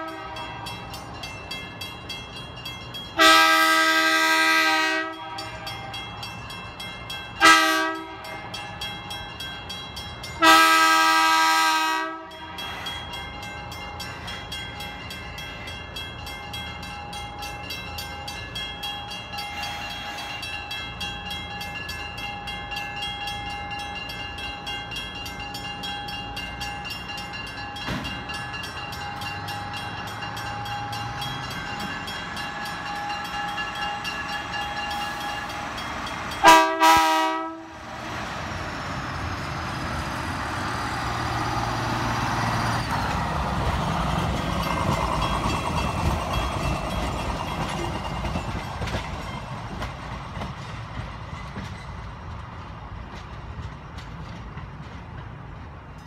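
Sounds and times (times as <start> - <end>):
train horn blasts: 0.0 - 0.7, 3.2 - 5.9, 7.4 - 8.4, 10.4 - 12.7, 36.4 - 37.8
crossing signal bell ringing: 0.0 - 11.2, 12.0 - 37.8, 39.1 - 49.8.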